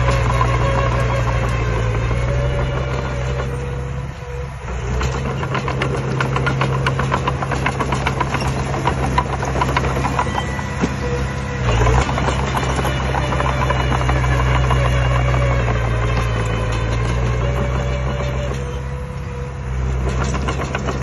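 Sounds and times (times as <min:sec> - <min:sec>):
bulldozer diesel engine running: 0:00.0 - 0:21.0
sharp metal clicks and clanks: 0:05.0 - 0:10.9, 0:20.0 - 0:21.0.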